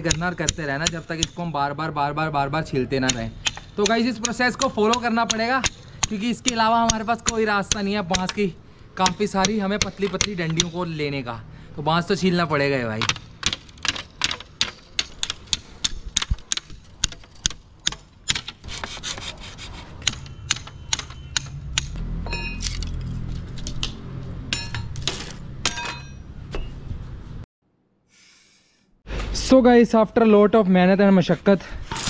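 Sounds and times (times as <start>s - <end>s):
hammer knocking on bamboo: 0.0s - 1.4s, 3.0s - 8.4s, 9.0s - 10.8s
bamboo scraping and rasping: 18.4s - 21.0s.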